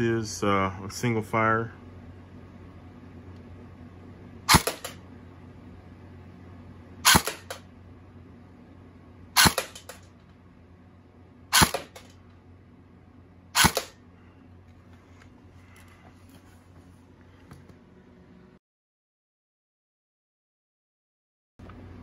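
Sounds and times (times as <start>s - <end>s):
airsoft rifle shots: 4.5s - 5.0s, 7.0s - 7.7s, 9.4s - 10.1s, 11.5s - 12.1s, 13.6s - 14.0s.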